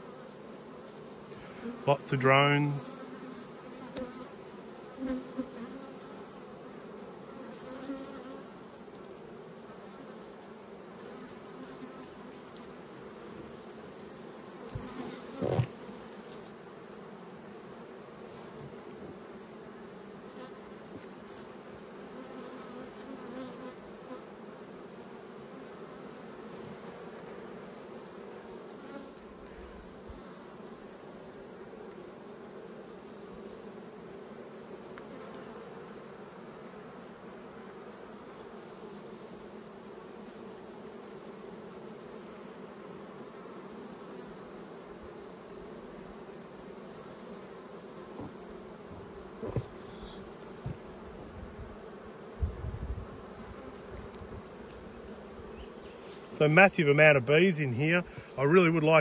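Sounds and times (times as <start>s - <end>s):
bees buzzing: 0.0s - 59.0s.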